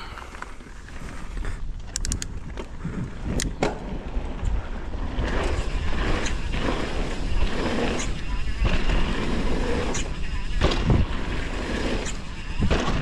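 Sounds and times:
bike tyre rumble on dirt: 0:00.0 - 0:13.0
wind buffeting microphone: 0:00.6 - 0:13.0
sharp clicks: 0:01.8 - 0:02.3.

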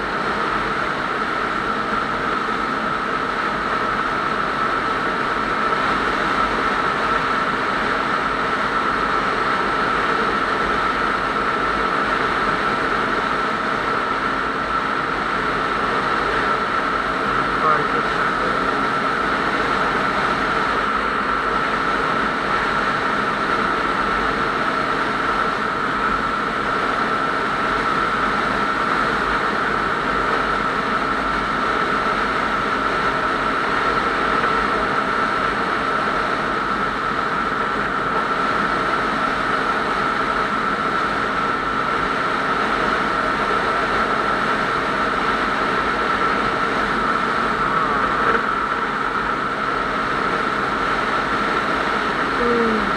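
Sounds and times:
high-pitched whine: 0:42.8 - 0:52.9.

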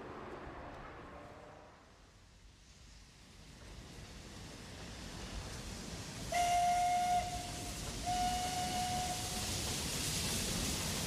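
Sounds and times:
steam hissing: 0:02.8 - 0:11.0
steam locomotive whistle: 0:06.3 - 0:09.5.

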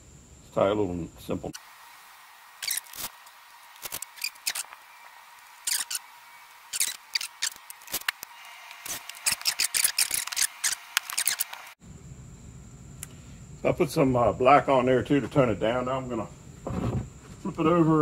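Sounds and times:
cord rustling and scraping: 0:08.8 - 0:11.7.

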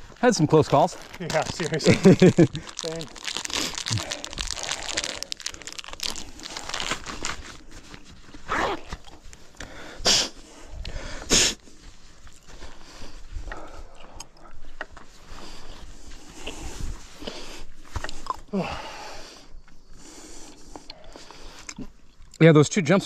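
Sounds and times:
dirt and gravel crunching: 0:00.0 - 0:09.9.

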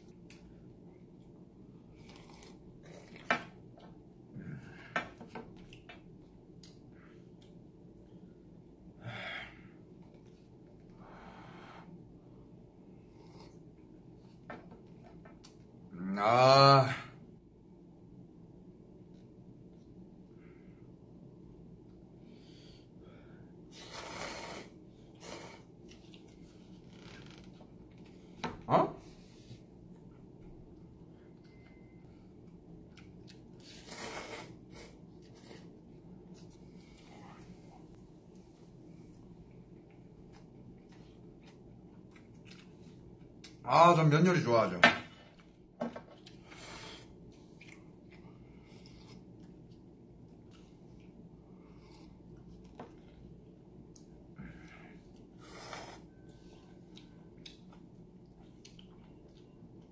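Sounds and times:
person slurping noodles: 0:33.6 - 0:34.7.

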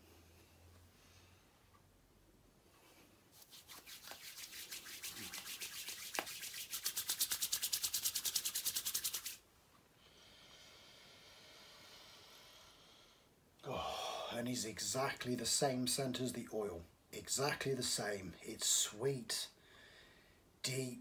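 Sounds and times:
palms rubbing together: 0:03.3 - 0:09.4.

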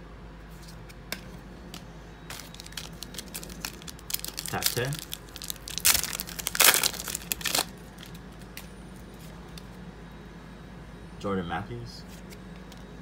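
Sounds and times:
foil wrapper tearing and crinkling: 0:02.3 - 0:08.2.

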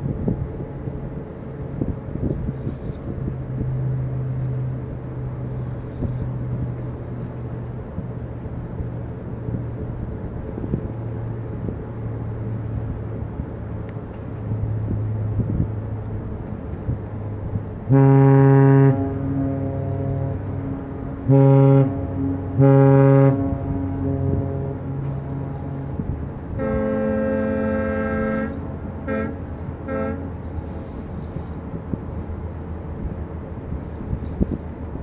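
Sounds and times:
low engine drone: 0:00.0 - 0:35.0
deep ship's horn blast: 0:17.8 - 0:31.6.

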